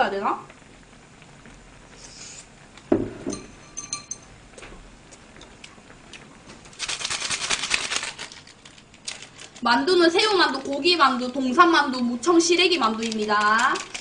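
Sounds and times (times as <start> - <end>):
knock: 2.9 - 3.5
tableware clinking: 2.9 - 4.3
crackling rustle: 4.4 - 14.0.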